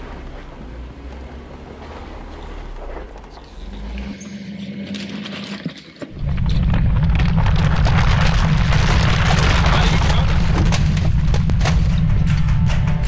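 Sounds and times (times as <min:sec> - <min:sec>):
off-road vehicle engine running: 0:00.0 - 0:13.0
loud low rumble: 0:06.1 - 0:13.0.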